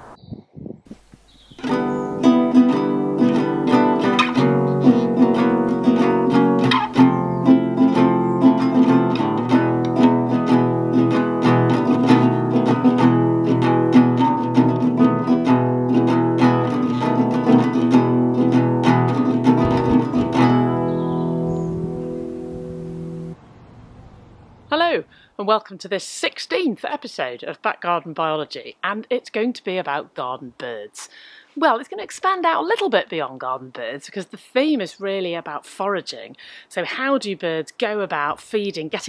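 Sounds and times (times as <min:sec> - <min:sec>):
acoustic guitar picking: 0:01.6 - 0:23.4.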